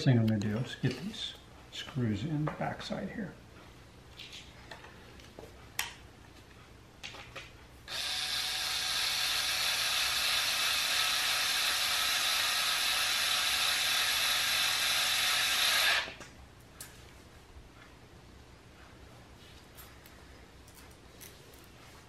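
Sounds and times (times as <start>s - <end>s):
electric screwdriver running: 7.9s - 16.2s.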